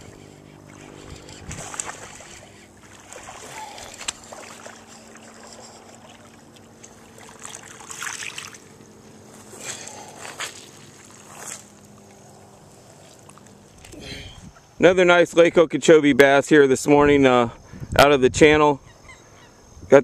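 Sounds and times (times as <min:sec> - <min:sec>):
fish splashing in water: 0:00.0 - 0:14.0
distant boat motor drone: 0:00.0 - 0:20.0.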